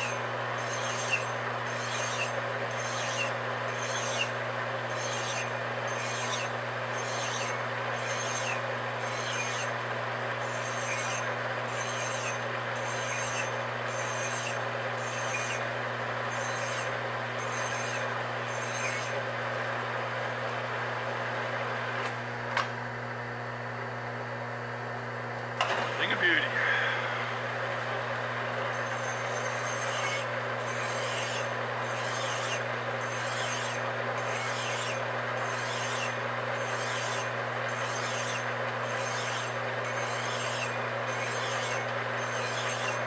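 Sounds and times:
file rasping on metal: 0.0 - 9.8, 10.4 - 15.7, 16.3 - 19.2, 28.7 - 43.0
lathe humming: 25.2 - 43.0.

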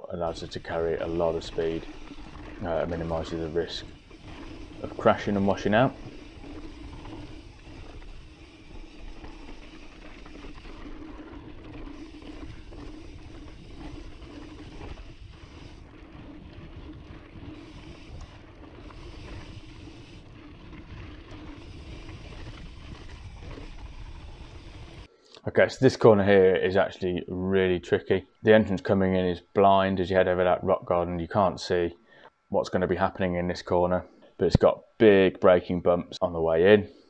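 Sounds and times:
bike tyre and wind rush: 0.2 - 25.1.

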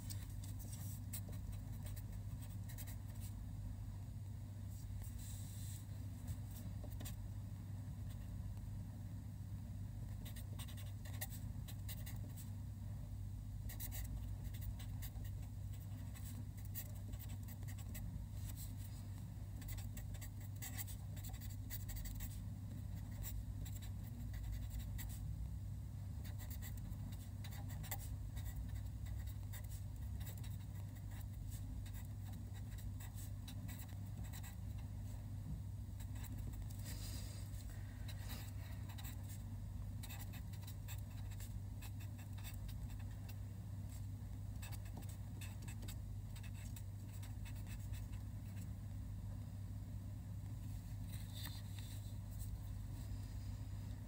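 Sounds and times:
steady low hum: 0.0 - 54.0
marker pen scratching on paper: 0.1 - 3.3, 10.2 - 12.4, 13.7 - 18.7, 19.6 - 22.4, 26.2 - 34.6, 38.1 - 39.4, 40.0 - 43.1.

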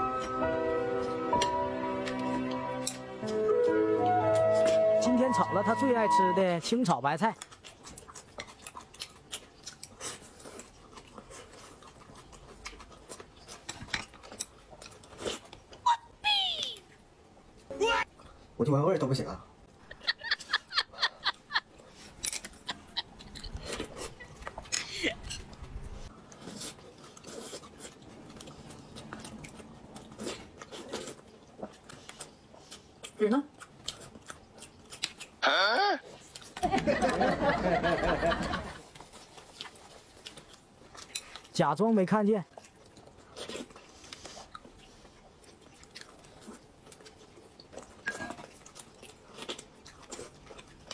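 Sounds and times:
chewing: 6.6 - 15.8, 21.2 - 35.4, 36.0 - 36.7, 38.8 - 50.9.

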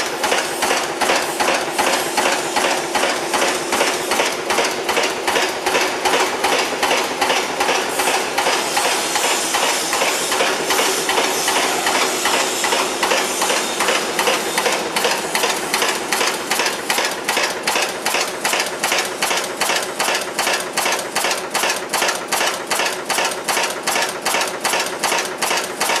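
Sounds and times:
machine metallic knocking: 0.0 - 26.0.

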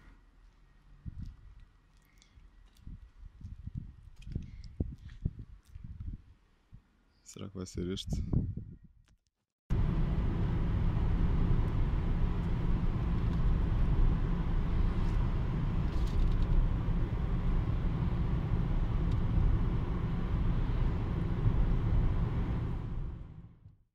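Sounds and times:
car engine and tyre noise: 9.7 - 23.6.

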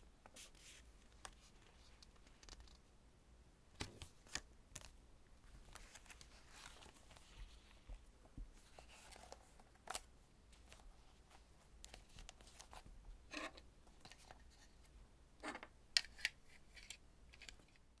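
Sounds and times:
notebook cover rustling: 3.8 - 12.9.

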